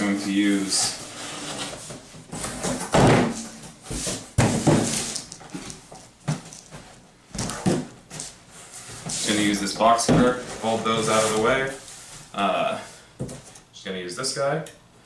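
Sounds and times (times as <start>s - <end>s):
cardboard scraping and rubbing: 0.5s - 2.7s, 10.2s - 12.2s.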